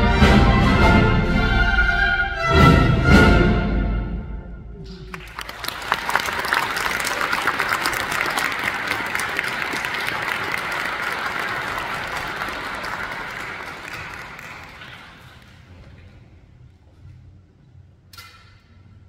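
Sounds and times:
audience applause: 5.1 - 15.9.

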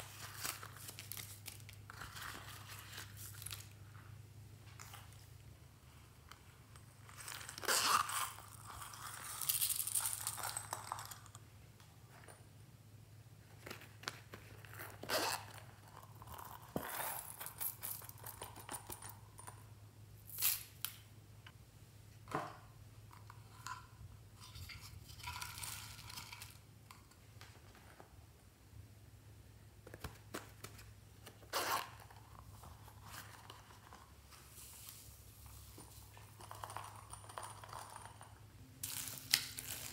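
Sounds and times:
zipper rasping open: 7.2 - 9.4, 14.6 - 17.5, 31.5 - 32.4.

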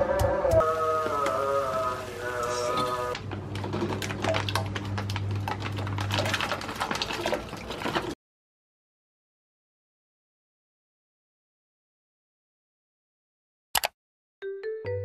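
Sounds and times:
food crackling and popping in pot: 3.2 - 8.2
background music: 14.4 - 15.0.

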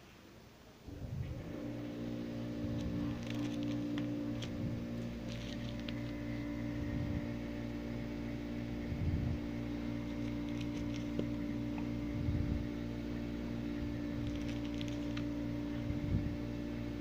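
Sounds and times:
low hum: 0.6 - 17.0
soft low thumps: 3.8 - 14.3.

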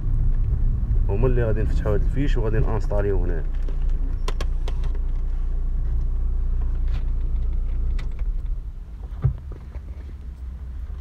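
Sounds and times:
low steady rumble: 0.0 - 11.0
thump: 9.1 - 9.6.

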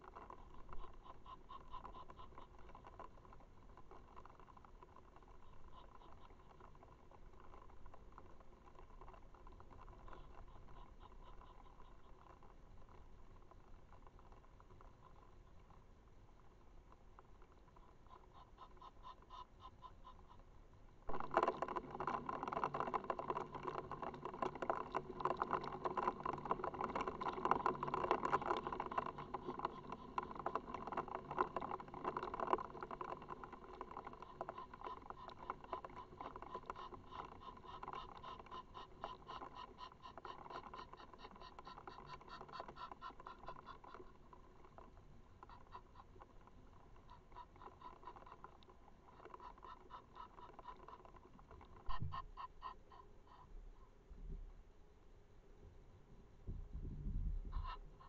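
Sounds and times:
rain pattering: 21.1 - 38.2.

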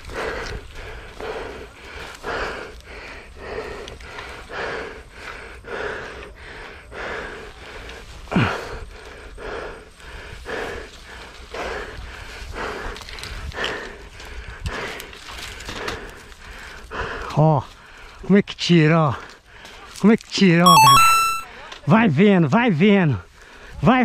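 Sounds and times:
man breathing hard: 0.0 - 18.2.

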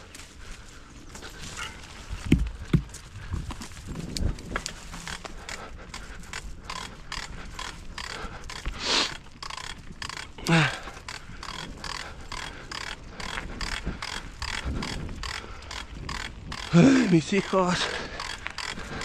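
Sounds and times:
mountain bike rattling: 0.0 - 19.0
rider grunting: 4.9 - 19.0.

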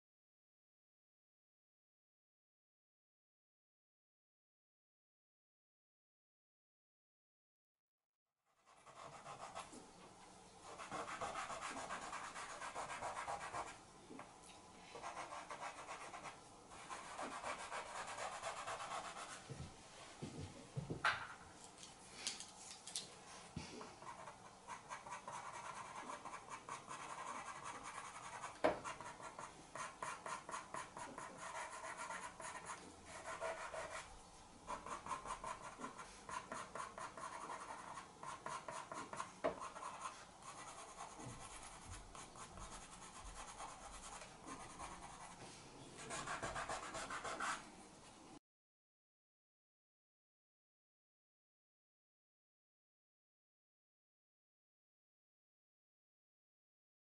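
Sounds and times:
pencil scratching on card: 8.6 - 9.7, 10.7 - 13.7, 15.0 - 19.4, 24.0 - 34.1, 34.7 - 45.4, 46.0 - 47.6.

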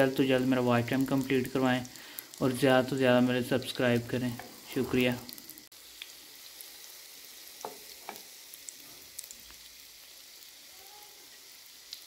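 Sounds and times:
food sizzling in oil: 0.0 - 12.0.

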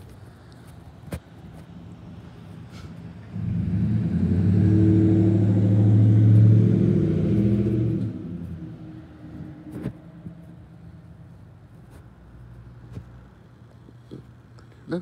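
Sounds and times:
vehicle engine droning: 1.5 - 11.8.

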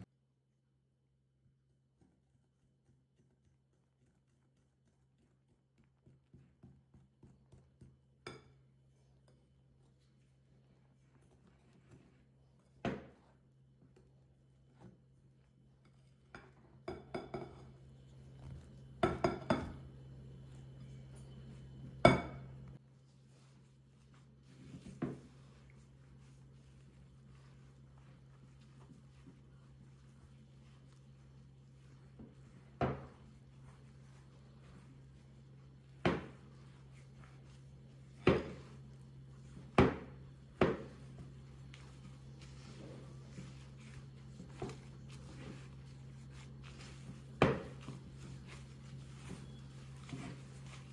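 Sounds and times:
low steady hum: 0.0 - 50.9
metal whisk clinking on glass bowl: 15.8 - 17.8
glass bowl knocking on countertop: 16.4 - 17.6, 19.0 - 19.8, 22.0 - 22.5.

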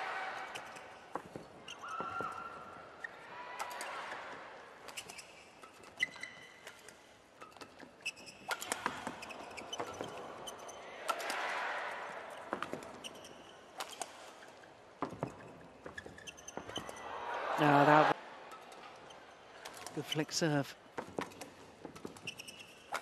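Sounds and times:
shoes squeaking on court: 0.4 - 11.4, 12.0 - 17.1, 17.9 - 23.0
racket striking shuttlecock: 8.5 - 10.2.

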